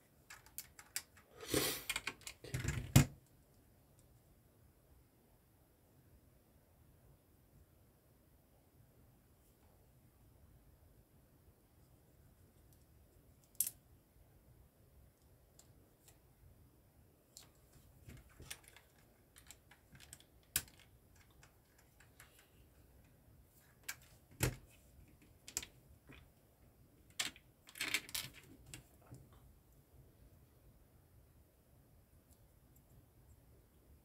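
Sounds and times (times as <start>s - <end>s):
plastic bricks clicking together: 13.4s - 13.8s, 18.0s - 22.5s, 27.1s - 28.9s.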